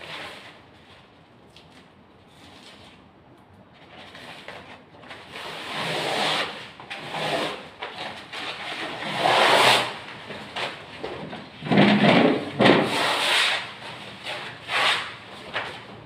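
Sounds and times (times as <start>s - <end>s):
wallpaper peeling and tearing: 3.8s - 16.0s.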